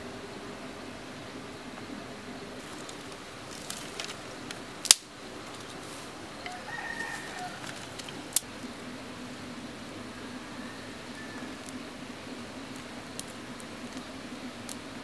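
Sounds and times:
dry twigs cracking: 2.6 - 8.5, 12.7 - 14.9
rooster crowing: 6.4 - 8.3, 10.1 - 11.8.

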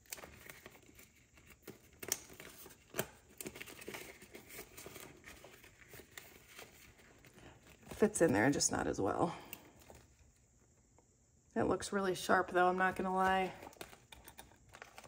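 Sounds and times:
plastic envelopes crinkling: 0.0 - 8.7, 12.6 - 15.0.

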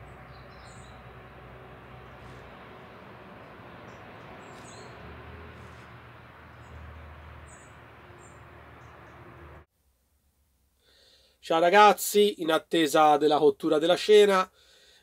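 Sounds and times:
high bird chirps: 0.0 - 1.2, 2.0 - 9.3
low rumble: 0.0 - 9.7.

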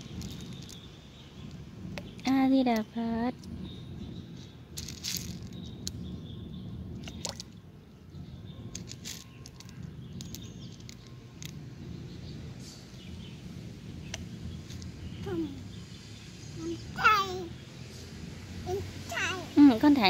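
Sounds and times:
steady low rumble: 0.0 - 18.8
water splashing and dripping: 4.4 - 20.0.

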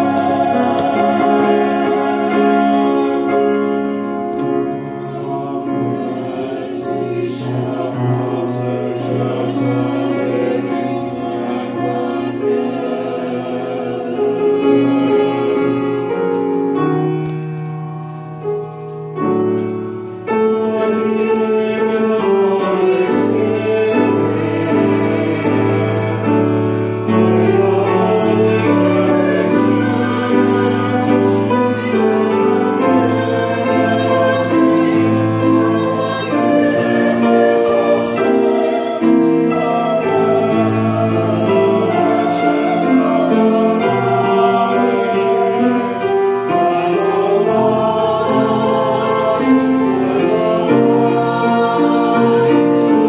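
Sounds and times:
choir singing slow chords: 0.0 - 53.0
instrumental accompaniment: 0.0 - 53.0.

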